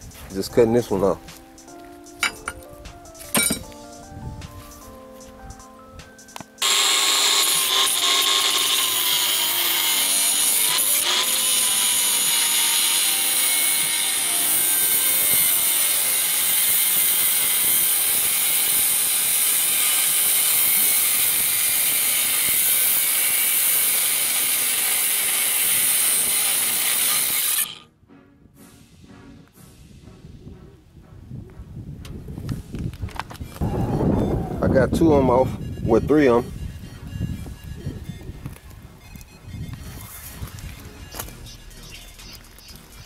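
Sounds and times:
cutoff wheel grinding metal: 6.6s - 27.9s.

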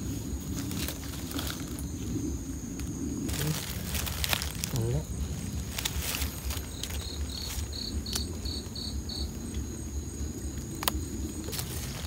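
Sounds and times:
insect chirping: 0.0s - 12.0s
rustling and handling noise: 3.2s - 8.4s.

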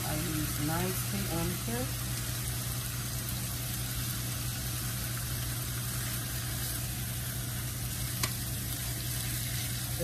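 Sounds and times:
pork chops sizzling on griddle: 0.0s - 10.0s
tongs clicking on griddle: 8.2s - 8.4s.

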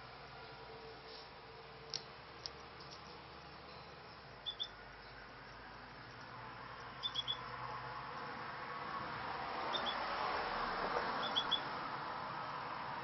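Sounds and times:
finches chirping: 4.4s - 4.8s, 7.0s - 7.5s, 9.7s - 10.0s, 11.2s - 11.7s.

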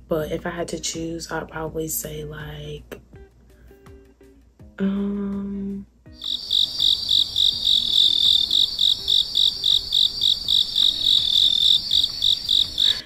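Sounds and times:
crickets chirping: 6.2s - 13.0s.

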